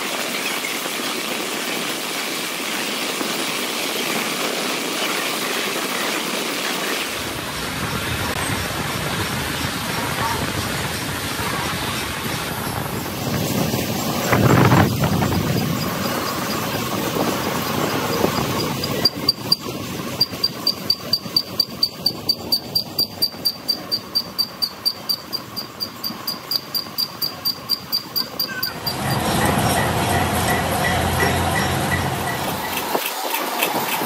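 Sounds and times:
sharp mechanical ticking: 0:15.3 - 0:34.0.

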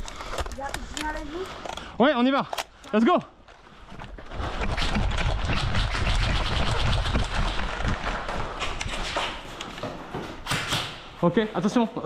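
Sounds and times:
quick footsteps: 0:03.4 - 0:11.2.

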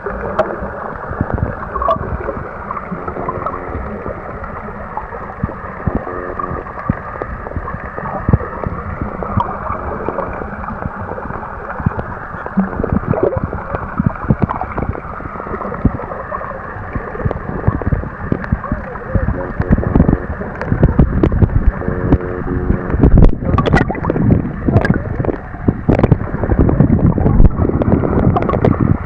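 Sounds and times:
muffled water sloshing underwater: 0:00.0 - 0:29.0.

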